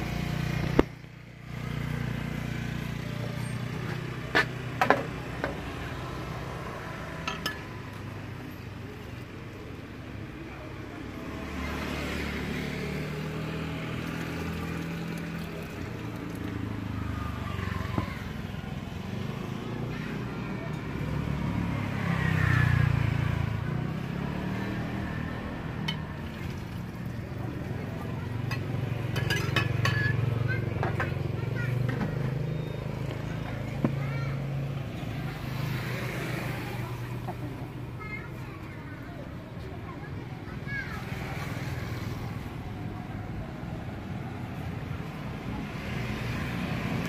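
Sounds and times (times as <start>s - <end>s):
street traffic rumble: 0.0s - 47.0s
vehicle engine passing by: 10.9s - 39.2s.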